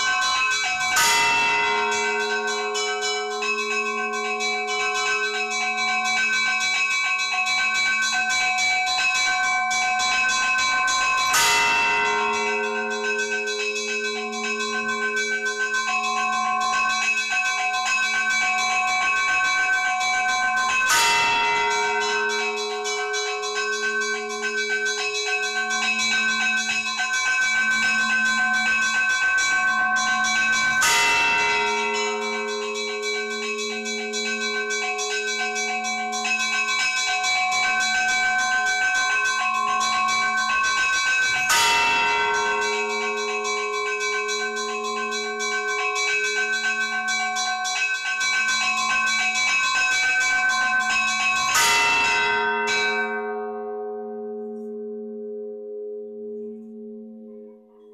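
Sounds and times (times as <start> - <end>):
heavy bell stroke: 0.0 - 7.9, 10.0 - 18.0, 20.6 - 37.8, 48.0 - 53.6
church bells pealing: 0.0 - 17.1, 17.8 - 55.2.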